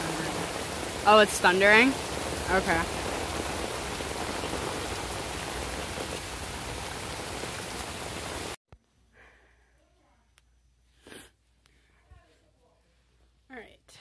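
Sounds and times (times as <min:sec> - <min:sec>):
rain falling on paving and pool: 0:00.0 - 0:08.6.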